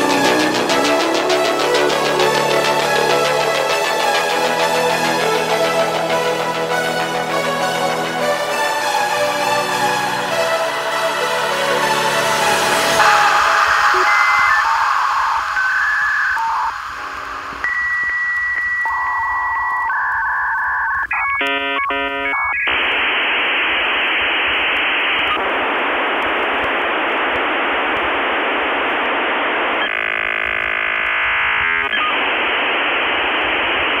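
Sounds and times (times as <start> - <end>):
modem loud hiss: 10.8 - 19.7
modem high answer tone: 13.0 - 16.8
modem warbling tones: 13.0 - 23.0
modem buzzing tones: 13.0 - 26.7, 27.3 - 34.0.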